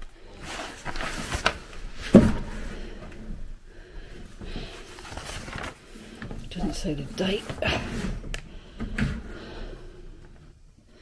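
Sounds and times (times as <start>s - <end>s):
rustling of dry paper pages: 0.0s - 2.9s, 4.3s - 8.8s
dull thump: 2.0s - 2.7s.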